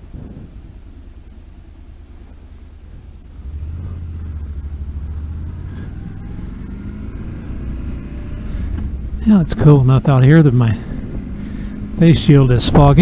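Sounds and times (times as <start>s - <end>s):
low rumble of wind: 0.0s - 13.0s
motorcycle engine accelerating: 2.9s - 13.0s.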